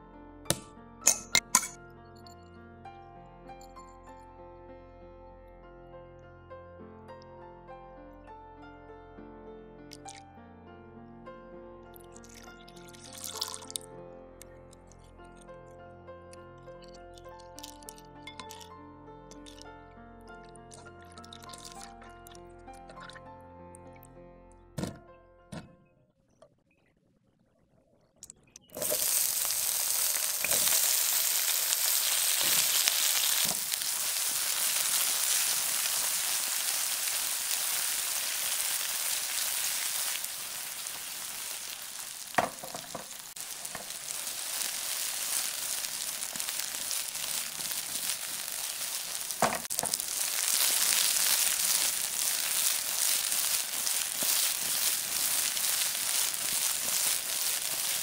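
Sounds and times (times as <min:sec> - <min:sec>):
food sizzling in hot oil: 0:00.6 - 0:01.8, 0:12.6 - 0:13.8, 0:28.7 - 0:58.0.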